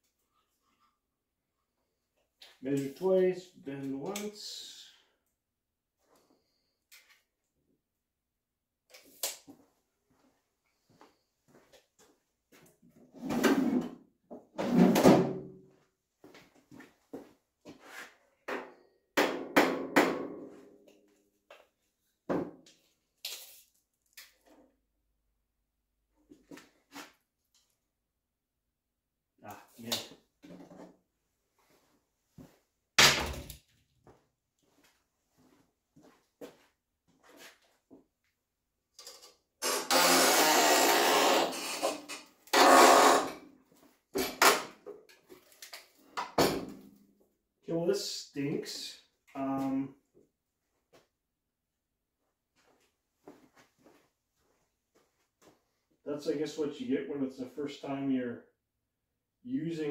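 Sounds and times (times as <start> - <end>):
metal grating scrape: 39.6 - 43.4.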